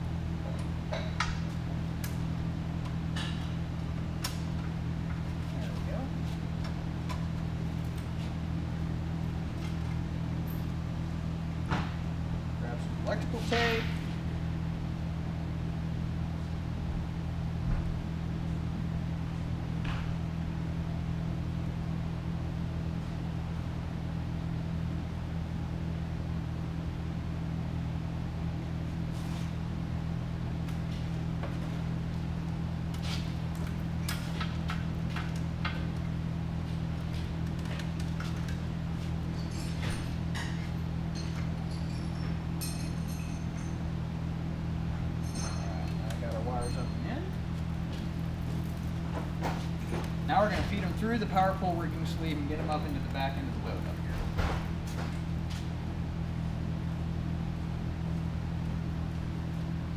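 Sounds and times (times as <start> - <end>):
low machine hum: 0.0 - 59.9.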